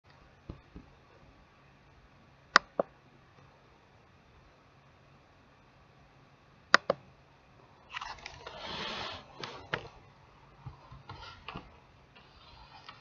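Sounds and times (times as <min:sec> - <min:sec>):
sharp clicks: 0:06.7 - 0:07.0.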